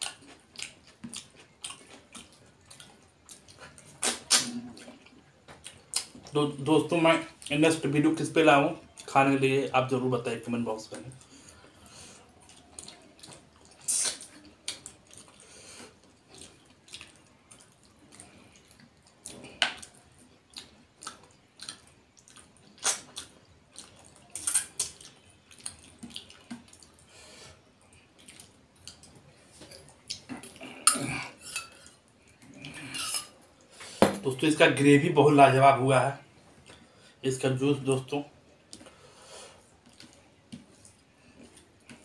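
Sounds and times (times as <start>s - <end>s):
wet chewing and lip smacks: 0.0s - 6.4s, 11.1s - 27.1s, 27.8s - 30.8s, 39.7s - 42.0s.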